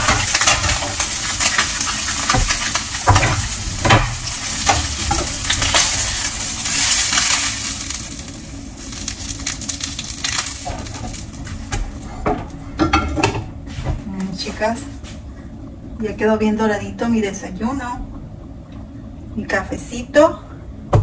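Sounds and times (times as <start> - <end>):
omelette sizzling in a pan: 0.0 - 12.0.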